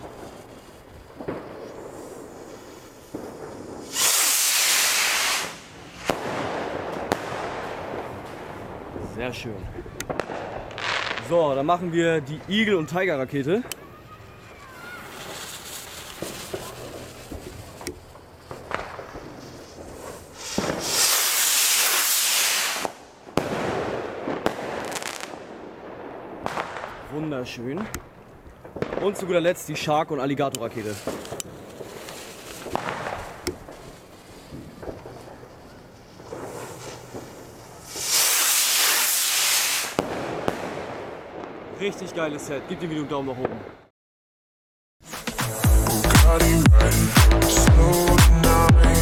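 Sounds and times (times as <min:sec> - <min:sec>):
firework rocket launching hiss: 0:00.0 - 0:08.8, 0:10.1 - 0:11.3, 0:13.8 - 0:25.5, 0:30.8 - 0:41.0
firework bang: 0:00.0 - 0:11.5, 0:18.5 - 0:27.1, 0:30.9 - 0:33.9, 0:36.2 - 0:41.8
firework crackle: 0:00.0 - 0:42.9.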